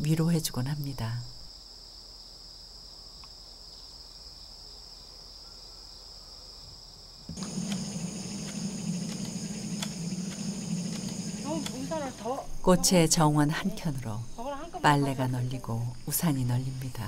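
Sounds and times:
insects chirping: 0.0s - 17.0s
light clicks: 7.3s - 11.9s
low hum: 7.3s - 12.6s.

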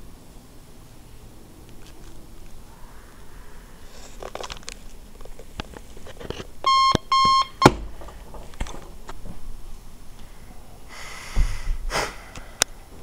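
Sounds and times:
soft clicks and rustling: 1.6s - 2.6s, 3.9s - 7.1s, 7.9s - 9.5s
alarm clock beeping: 6.7s - 7.8s.

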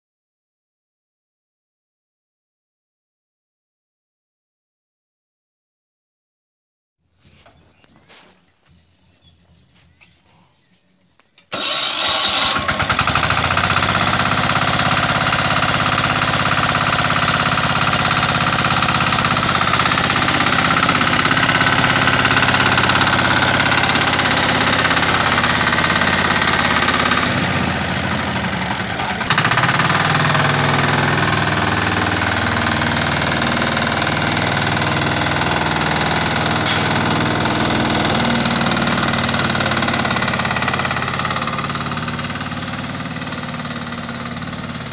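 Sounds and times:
tiller engine running: 11.4s - 44.9s.

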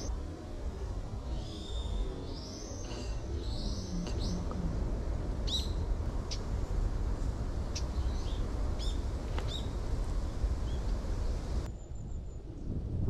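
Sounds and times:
wind rumble on microphone: 0.0s - 13.0s
small birds calling: 5.4s - 6.8s, 7.6s - 9.8s.

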